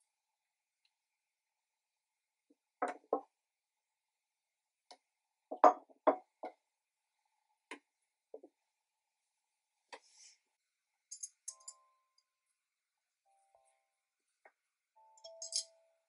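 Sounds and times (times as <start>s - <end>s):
carrots clinking in glass bowl: 15.2s - 15.7s.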